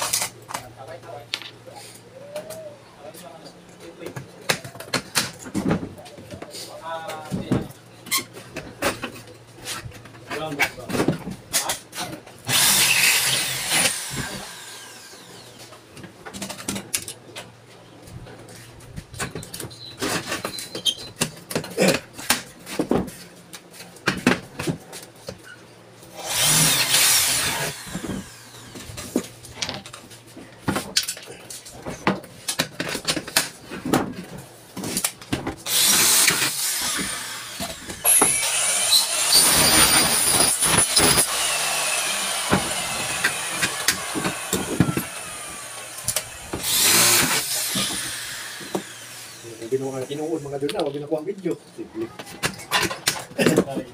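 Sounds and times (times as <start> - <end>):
cordless drill running: 12.5 - 15.6, 26.2 - 28.9, 35.7 - 50.2.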